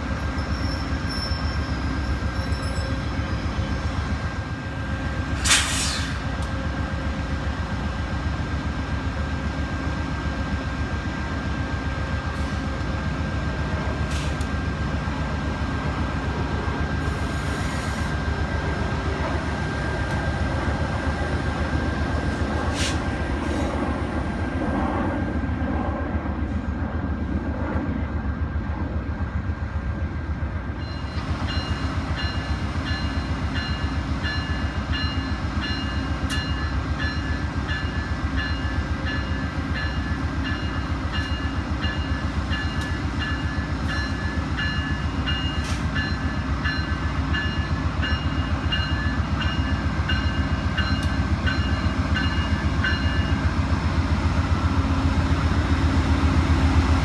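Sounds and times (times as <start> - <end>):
diesel locomotive idling: 28.5 - 57.0.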